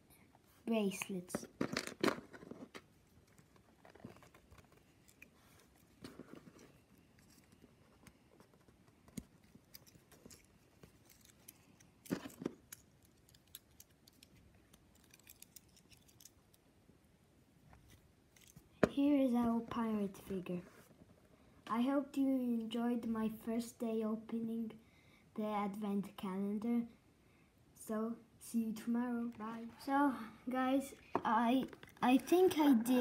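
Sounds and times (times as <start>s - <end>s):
small plastic pieces clicking: 9.7s - 16.4s.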